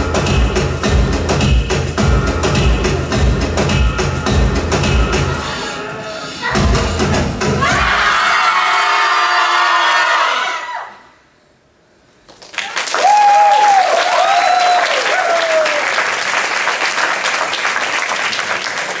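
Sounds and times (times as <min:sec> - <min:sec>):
music: 0:00.0 - 0:08.4
audience applause: 0:12.3 - 0:19.0
people whooping and cheering: 0:12.6 - 0:16.2.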